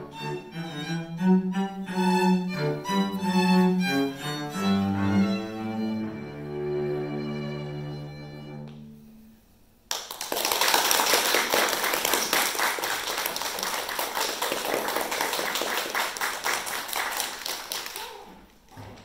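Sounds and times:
audience applauding: 9.9 - 18.5.

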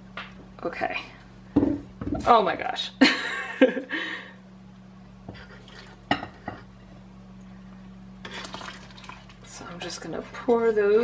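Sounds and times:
soft pouring: 5.4 - 6.0, 7.3 - 9.6.

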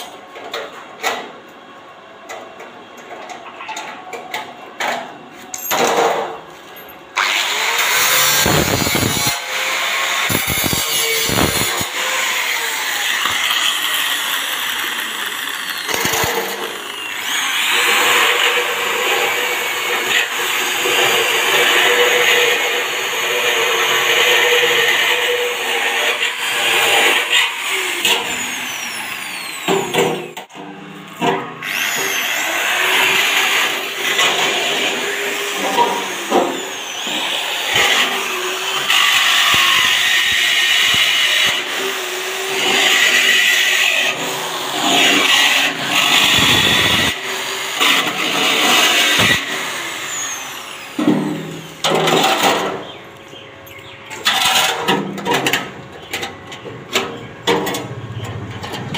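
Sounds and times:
electric drill boring through steel: 7.2 - 30.4, 31.6 - 51.9.

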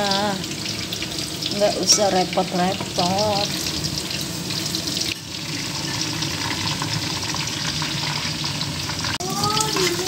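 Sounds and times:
food sizzling in hot oil: 0.0 - 10.0.

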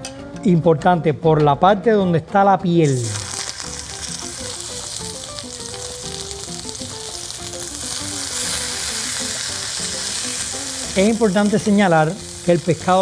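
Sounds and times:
fish sizzling in hot oil: 2.8 - 13.0.

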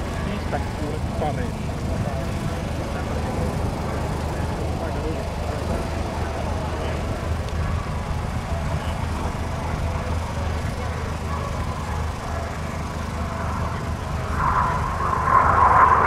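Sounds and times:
jet aircraft approaching: 0.0 - 16.0
low outdoor rumble: 0.0 - 16.0.

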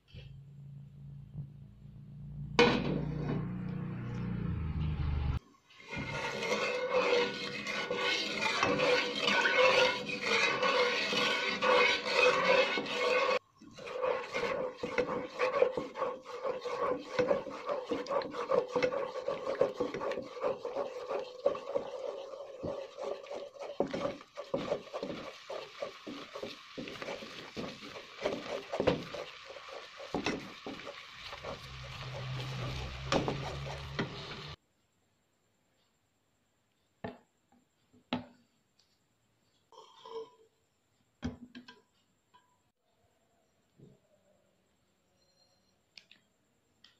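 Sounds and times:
wooden spatula scraping a pot: 5.7 - 34.6.

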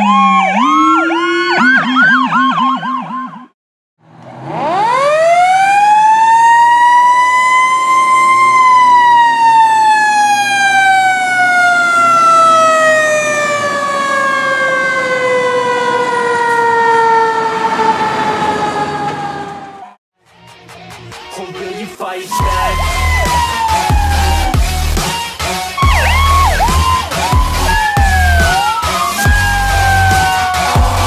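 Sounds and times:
fire truck siren winding: 4.5 - 20.0, 22.4 - 25.0, 25.8 - 31.0.

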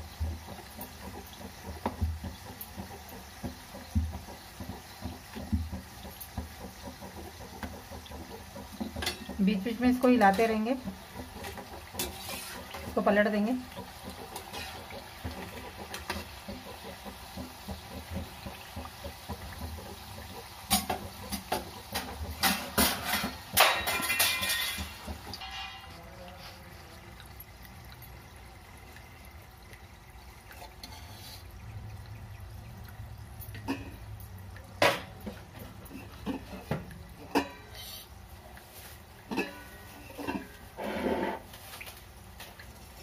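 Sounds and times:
chips sizzling in hot oil: 0.0 - 27.0, 27.7 - 32.6, 33.6 - 43.0
metal spoon scraping a pan: 10.2 - 13.1, 14.3 - 15.0, 22.4 - 26.6, 30.6 - 31.5, 37.3 - 38.1, 39.3 - 41.5.

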